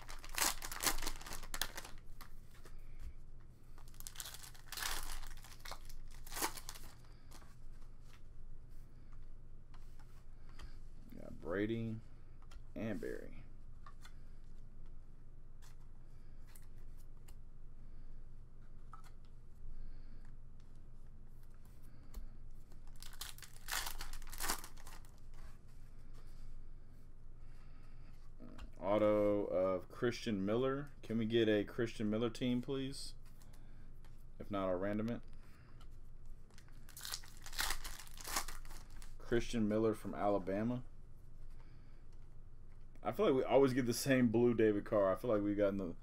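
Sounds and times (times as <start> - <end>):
foil wrapper tearing and crinkling: 0.0 - 2.0, 3.9 - 7.0, 22.9 - 25.1, 36.9 - 39.2.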